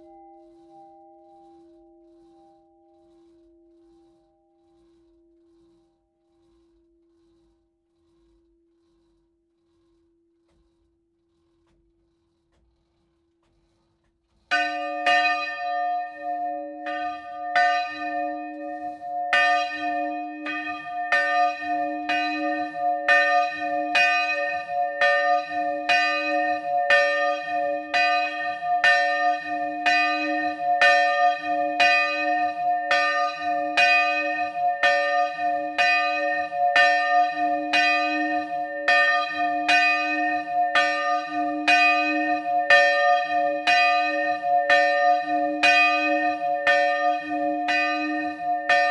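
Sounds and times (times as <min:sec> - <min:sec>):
church bell ringing: 0:00.0 - 0:02.9, 0:14.6 - 0:48.9.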